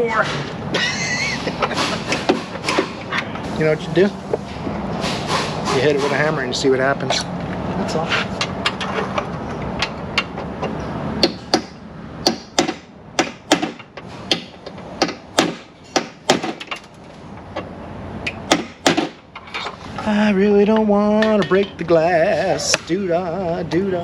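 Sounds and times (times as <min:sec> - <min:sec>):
hammer striking metal: 0:01.3 - 0:03.6, 0:04.4 - 0:06.5, 0:09.8 - 0:16.9, 0:20.7 - 0:21.9.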